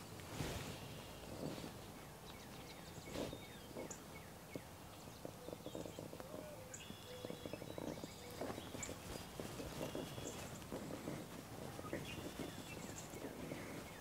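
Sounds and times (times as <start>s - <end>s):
faint bird chirps: 0.8s - 14.0s
pipe smoker puffing: 7.2s - 14.0s.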